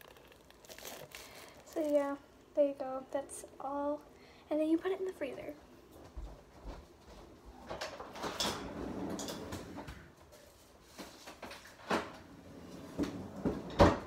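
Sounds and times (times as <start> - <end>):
rustling and shuffling in fridge: 0.0 - 2.7, 6.0 - 14.0.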